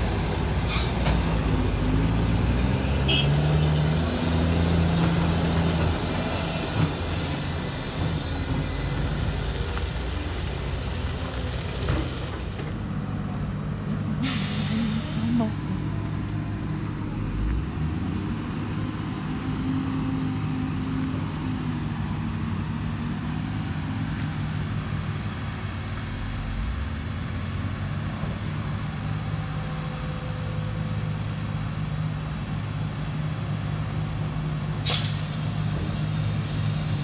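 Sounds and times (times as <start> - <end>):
diesel engine running: 0.0 - 37.0
short hiss burst: 14.2 - 15.4, 34.8 - 37.0.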